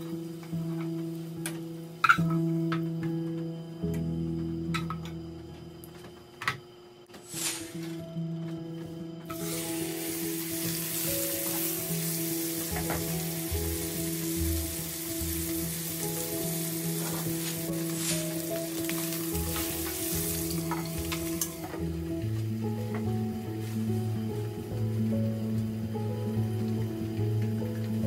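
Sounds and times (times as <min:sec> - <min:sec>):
steak sizzling in a frying pan: 0:09.3 - 0:28.0.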